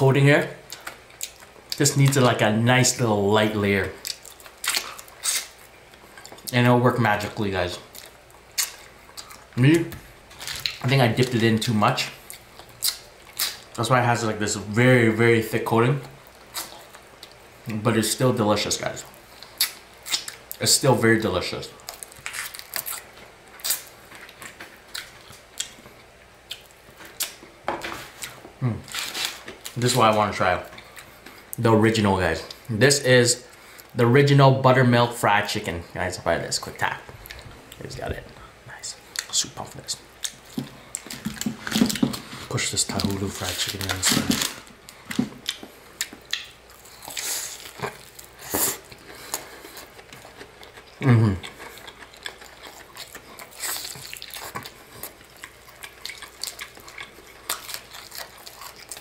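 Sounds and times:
crunchy chewing: 4.0s - 6.5s, 40.2s - 59.0s.

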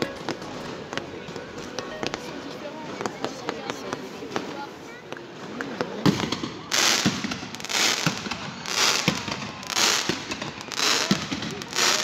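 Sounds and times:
fireworks crackling bursts: 0.0s - 12.0s
fireworks sharp bangs: 6.0s - 12.0s.

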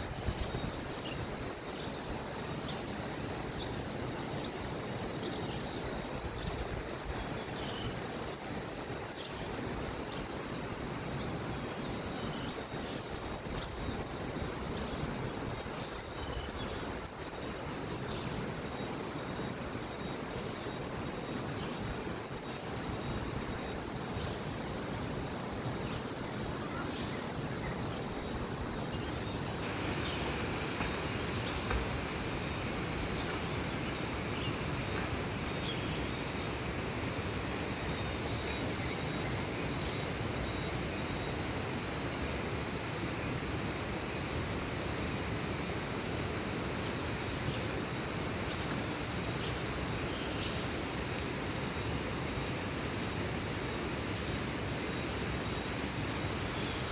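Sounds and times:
river water rushing: 27.3s - 44.0s.

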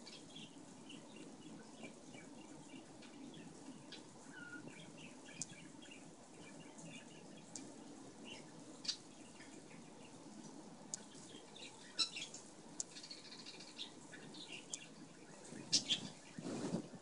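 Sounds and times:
cat scratching and rustling: 15.5s - 17.0s.

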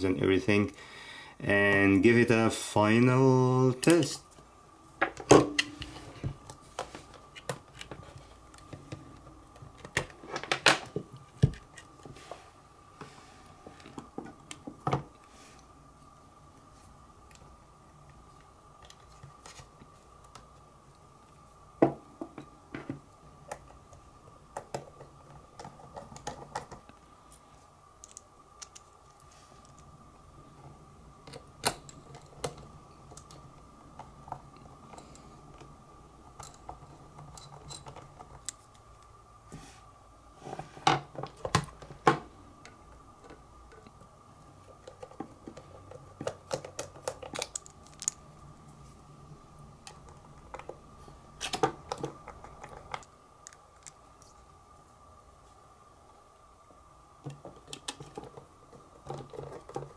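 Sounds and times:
clicks and taps of small parts: 46.2s - 48.2s.

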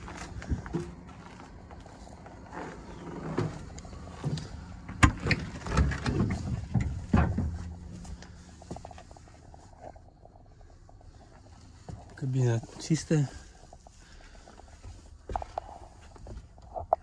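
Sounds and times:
footsteps on steel ladder: 0.0s - 1.5s
low thumps and knocks: 4.2s - 8.9s.

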